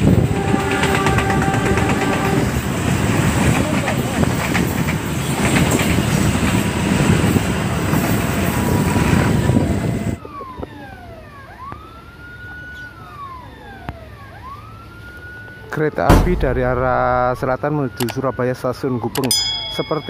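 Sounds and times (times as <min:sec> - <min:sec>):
level crossing siren wailing: 0:10.2 - 0:19.7.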